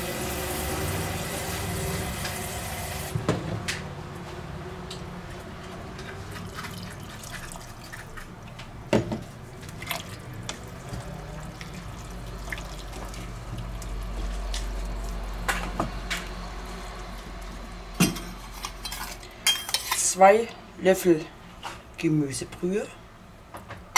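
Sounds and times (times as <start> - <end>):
wet squelching and bubbling: 9.5 - 15.4.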